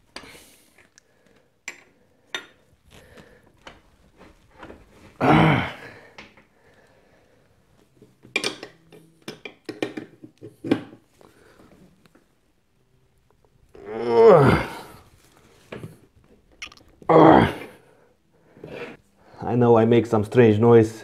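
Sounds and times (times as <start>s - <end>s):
person grunting with effort: 5.2s - 6.1s, 13.8s - 15.0s, 17.1s - 17.8s.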